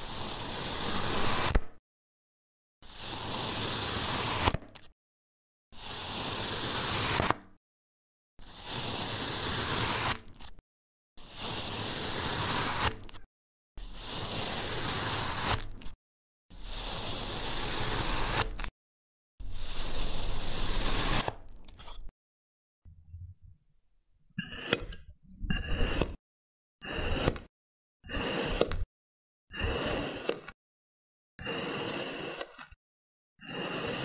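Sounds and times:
knife slicing through packed sand: 0:00.0 - 0:01.8, 0:05.8 - 0:07.4, 0:08.4 - 0:10.6, 0:11.2 - 0:13.2, 0:13.8 - 0:15.9, 0:16.5 - 0:18.7, 0:19.4 - 0:22.1, 0:28.1 - 0:28.8, 0:29.6 - 0:30.6, 0:33.4 - 0:34.0.

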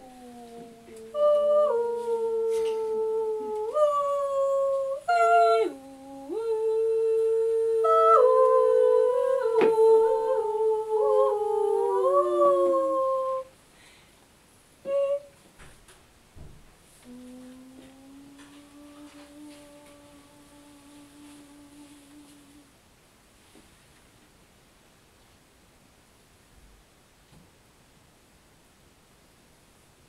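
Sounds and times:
people humming held notes: 0:00.0 - 0:13.5, 0:14.8 - 0:15.4, 0:17.0 - 0:22.7.

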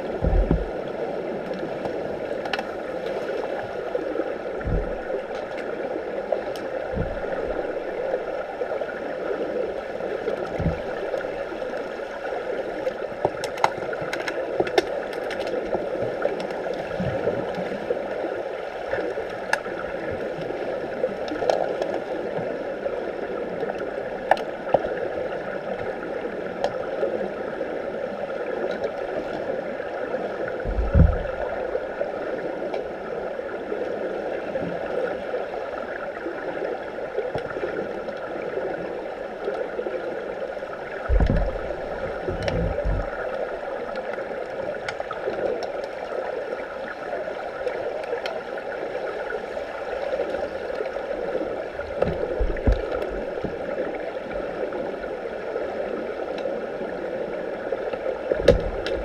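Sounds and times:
muffled underwater rushing: 0:00.0 - 0:59.0
low thump: 0:00.2 - 0:00.7, 0:04.6 - 0:05.1, 0:30.7 - 0:31.4, 0:41.1 - 0:41.7
sharp underwater clicks and knocks: 0:00.2 - 0:00.8, 0:01.4 - 0:03.2, 0:04.6 - 0:05.7, 0:06.4 - 0:08.3, 0:10.3 - 0:11.9, 0:12.8 - 0:17.6, 0:18.9 - 0:19.9, 0:21.2 - 0:22.4, 0:23.7 - 0:25.0, 0:30.6 - 0:31.6, 0:41.0 - 0:44.2, 0:51.8 - 0:53.6, 0:57.9 - 0:59.0.

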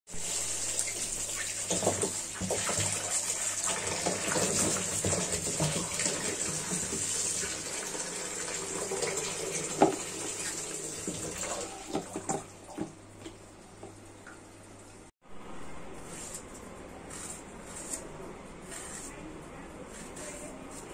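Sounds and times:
tap water running into sink: 0:00.2 - 0:14.4.

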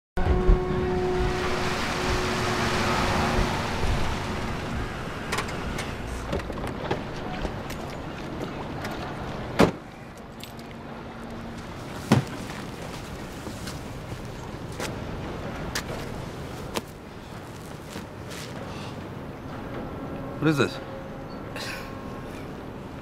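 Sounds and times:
tyres hissing on wet street: 0:01.0 - 0:06.4, 0:15.7 - 0:19.2.

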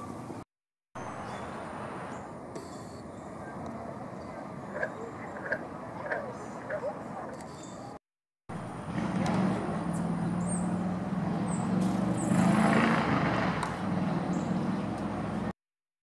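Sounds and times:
bird chirps: 0:01.0 - 0:08.0
engine humming: 0:01.0 - 0:15.5.

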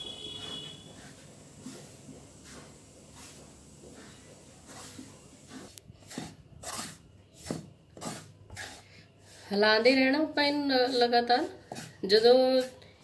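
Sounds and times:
wooden spatula scraping iron pan: 0:00.2 - 0:10.0.

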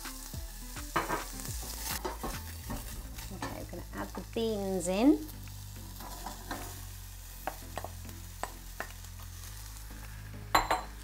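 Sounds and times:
food sizzling in a pan: 0:00.0 - 0:11.0
utensils tapping a pan: 0:00.9 - 0:03.7, 0:06.0 - 0:06.8, 0:07.4 - 0:09.0.

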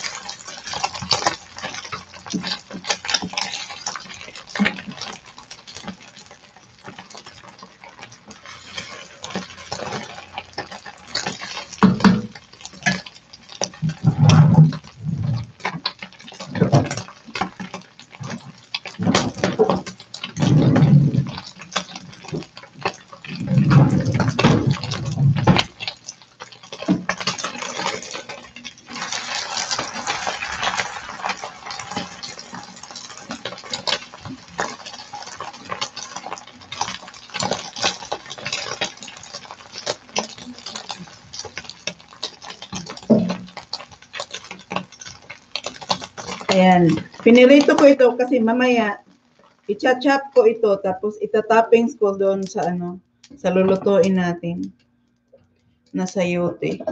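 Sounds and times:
egg sizzling in a pan: 0:00.0 - 0:54.4
spatula scraping a pan: 0:08.0 - 0:47.9.

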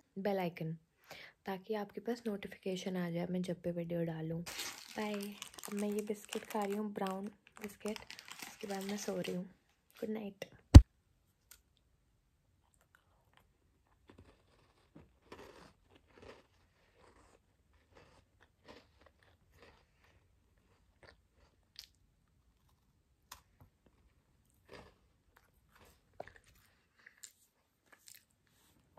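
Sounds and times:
biscuit crunching and chewing: 0:04.5 - 0:09.3, 0:12.6 - 0:28.9.

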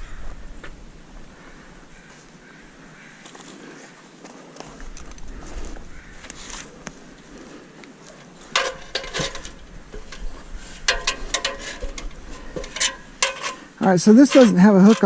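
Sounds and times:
metal cable clinking and rattling: 0:08.1 - 0:15.0.

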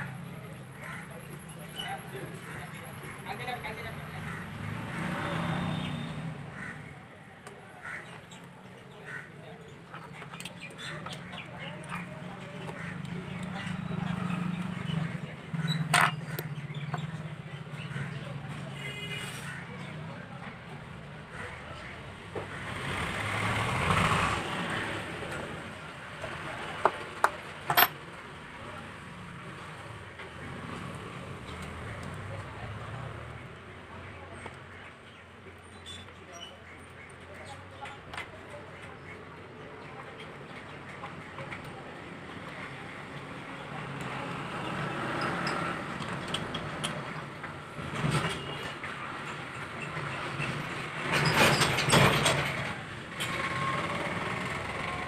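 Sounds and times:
road traffic rumble: 0:00.0 - 0:55.0
road vehicle passing: 0:02.8 - 0:06.8, 0:22.4 - 0:34.4.

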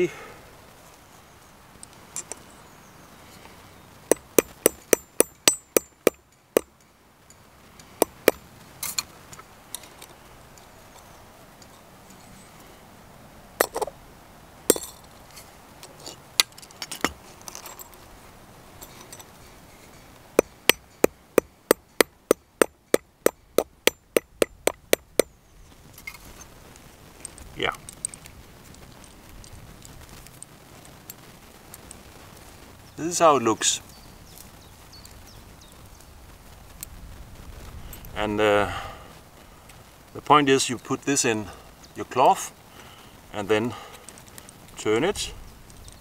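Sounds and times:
hammer tapping metal on anvil: 0:04.1 - 0:06.7, 0:20.4 - 0:25.3.

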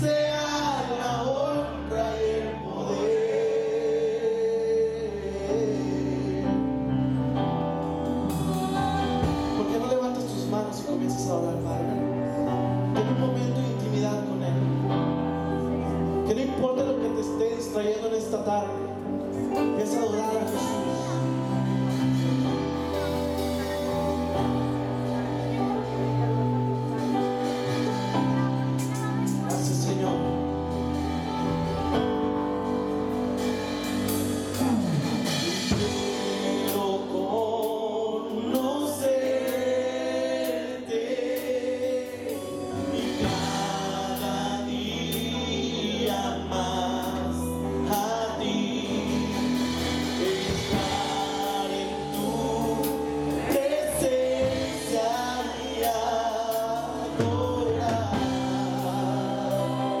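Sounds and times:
keyboard: 0:00.0 - 1:00.0
woman and man singing: 0:00.0 - 1:00.0
electric guitar: 0:04.9 - 0:40.2.

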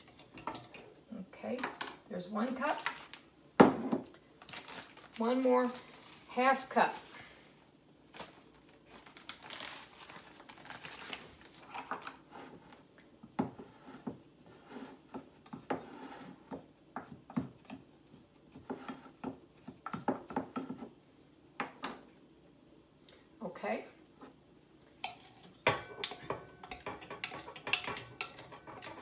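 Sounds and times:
plastic bag crinkling: 0:02.6 - 0:03.2, 0:04.4 - 0:06.3, 0:08.1 - 0:12.2.

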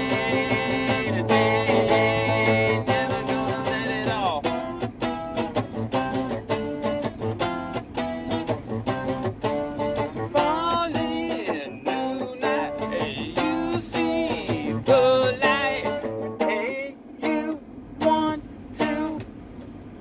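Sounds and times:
man singing: 0:00.0 - 0:04.6, 0:10.2 - 0:19.2
acoustic guitar strumming: 0:00.0 - 0:19.4.

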